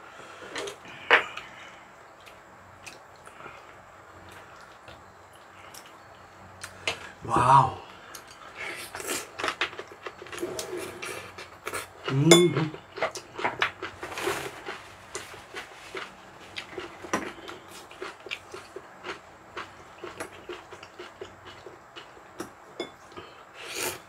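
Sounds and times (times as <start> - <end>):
person humming: 7.2 - 7.9.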